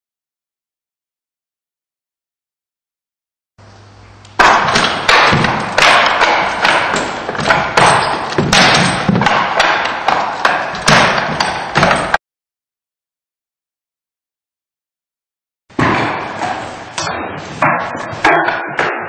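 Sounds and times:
sharp wooden knocks: 4.4 - 12.2, 15.8 - 19.0.

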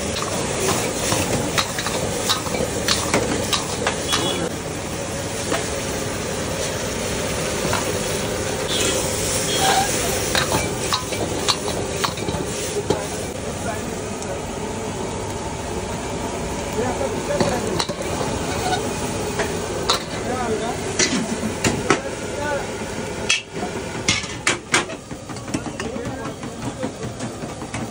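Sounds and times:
food sizzling in a wok: 0.0 - 13.7, 16.1 - 25.0
metal ladle scraping a pan: 8.7 - 10.7, 17.8 - 19.0.

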